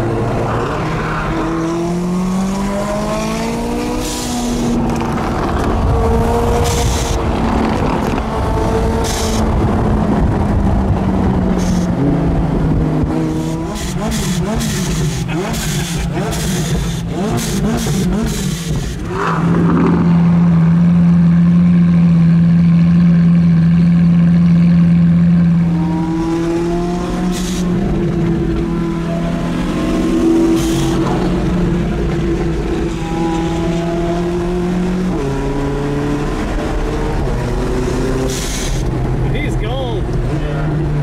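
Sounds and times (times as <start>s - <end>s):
sports car engine running: 4.4s - 41.0s.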